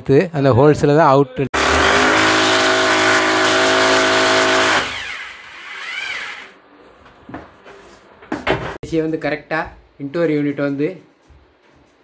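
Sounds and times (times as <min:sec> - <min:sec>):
electric drill boring into wall: 0:01.6 - 0:06.6.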